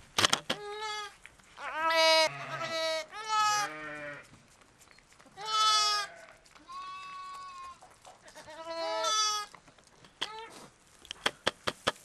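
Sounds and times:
lambs bleating: 0.6s - 4.3s, 5.4s - 9.5s.

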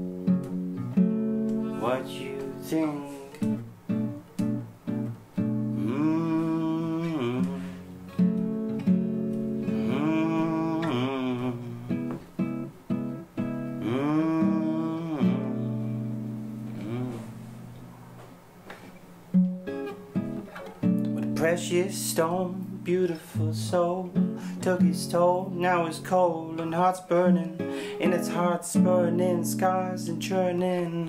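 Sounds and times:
acoustic guitar picking: 0.0s - 31.0s
wordless vocal phrases: 1.7s - 3.5s, 5.8s - 7.8s, 9.8s - 12.1s, 13.8s - 15.7s, 16.7s - 17.5s.

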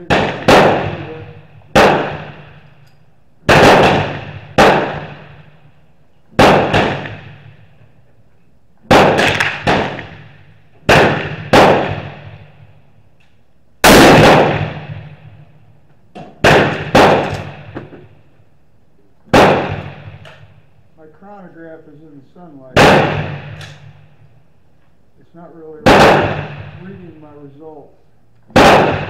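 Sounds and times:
loud blast: 0.0s - 2.7s, 3.5s - 5.6s, 6.4s - 7.7s, 8.9s - 12.7s, 13.8s - 15.5s, 16.4s - 18.2s, 22.8s - 24.0s, 25.8s - 27.4s, 28.6s - 29.0s
rifle gunshots with ringing echo: 0.0s - 2.8s, 3.4s - 7.8s, 8.8s - 13.0s, 13.8s - 18.5s, 19.3s - 20.8s, 22.5s - 24.6s, 25.6s - 27.8s, 28.5s - 29.0s.

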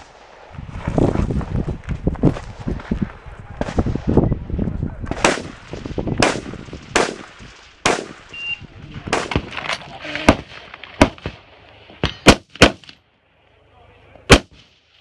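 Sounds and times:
rifle shots with echo: 5.1s - 8.4s, 9.1s - 9.5s, 14.3s - 14.7s.

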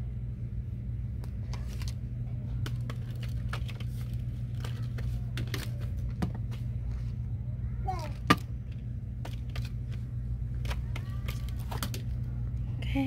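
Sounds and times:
steady low hum: 0.0s - 13.0s
packaging clicks and crinkles: 2.6s - 6.2s, 10.6s - 12.3s.

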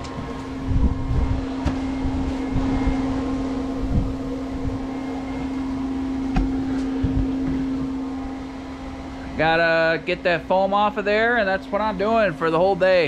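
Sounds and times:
dull low thumps: 0.0s - 9.6s
fan-like mechanical hum: 0.0s - 13.0s.

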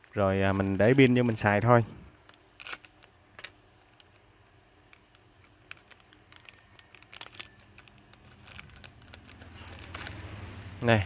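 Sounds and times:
plastic bag crackling: 5.6s - 10.4s.

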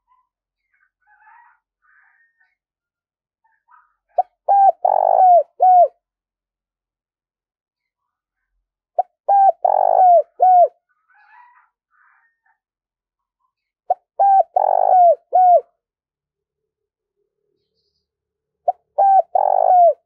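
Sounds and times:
dove cooing: 4.2s - 6.0s, 9.3s - 10.8s, 13.9s - 15.7s, 18.7s - 20.0s.

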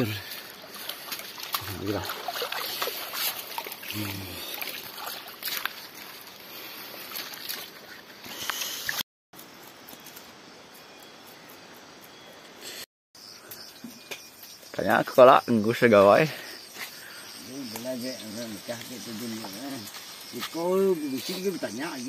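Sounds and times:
water sloshing and splashing: 0.0s - 9.0s
faint outdoor hiss: 0.0s - 22.0s.

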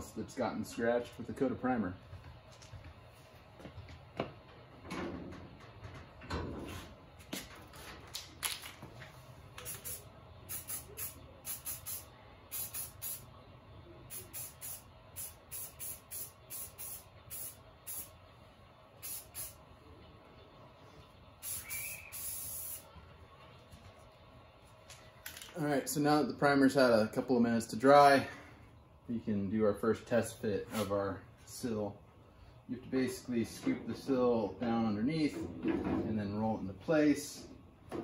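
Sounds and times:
aerosol spray hissing: 9.6s - 13.2s, 14.1s - 18.1s, 19.0s - 19.6s, 21.4s - 22.9s.

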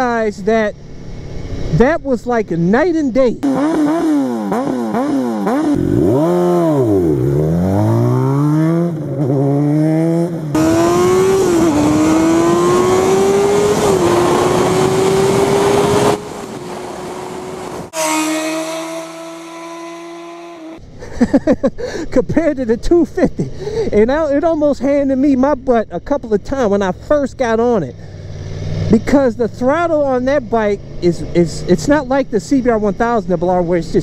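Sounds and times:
motorcycle engine revving: 3.4s - 20.8s, 27.6s - 32.0s.

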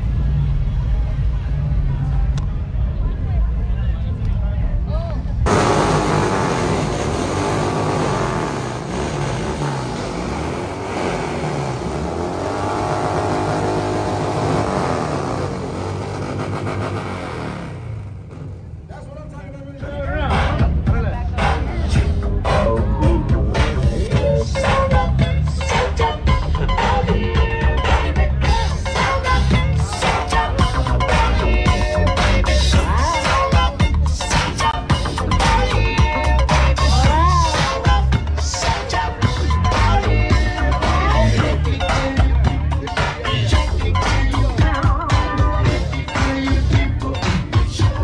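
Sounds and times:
car engine running: 5.5s - 19.5s
music with bass and drums: 19.6s - 48.0s.

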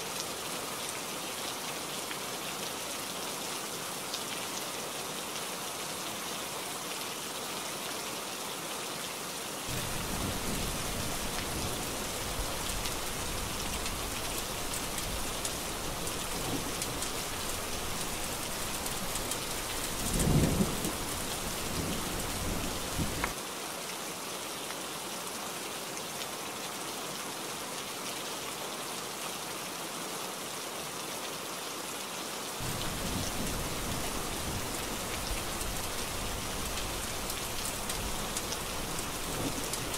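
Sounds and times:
heavy rain falling: 9.2s - 23.8s, 32.5s - 39.9s
thunder rumbling: 9.7s - 23.3s, 32.6s - 39.9s.

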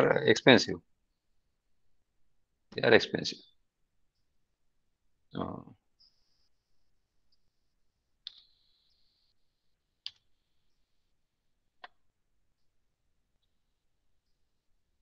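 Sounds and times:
faint clicks: 8.2s - 8.7s.

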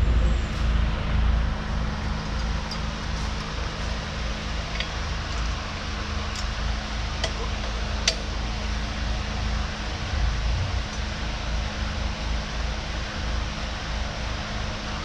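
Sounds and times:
steady background hum: 0.0s - 15.0s
light metallic clicks of bolts: 8.0s - 8.3s.

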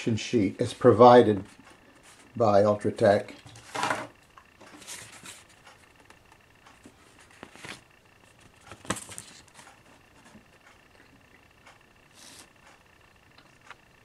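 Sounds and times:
paper rustling and crinkling: 4.6s - 5.6s, 6.8s - 10.3s
page turning: 7.1s - 9.7s.

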